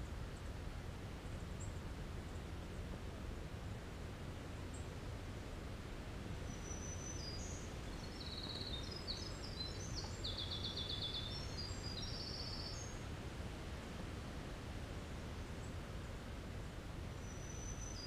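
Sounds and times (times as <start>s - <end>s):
wren singing: 6.5s - 13.0s.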